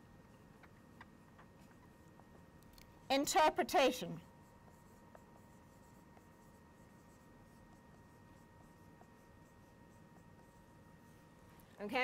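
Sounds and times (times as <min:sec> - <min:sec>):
faint steady whine: 0:00.0 - 0:12.0
marker writing on whiteboard: 0:00.6 - 0:02.5, 0:04.2 - 0:11.4.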